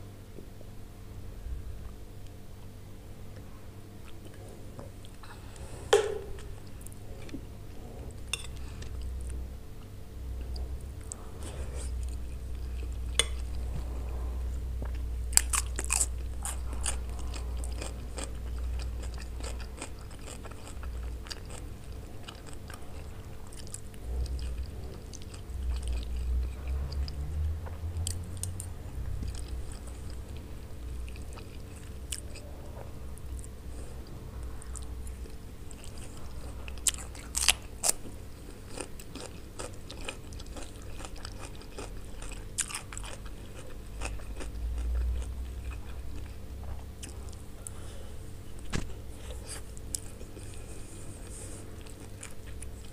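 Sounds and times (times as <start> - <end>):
chewing and biting food: 14.8 - 47.8, 48.4 - 52.9.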